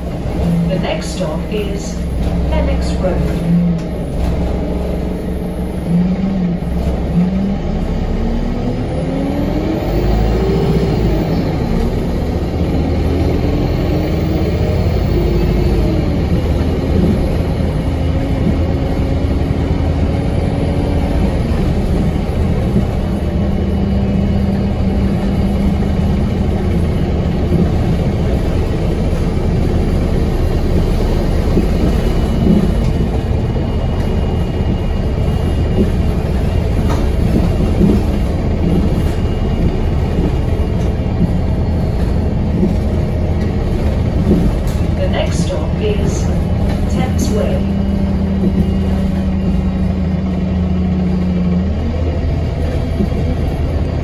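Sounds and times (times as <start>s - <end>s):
bus engine and road rumble: 0.0s - 54.0s
engine and transmission whine: 0.0s - 54.0s.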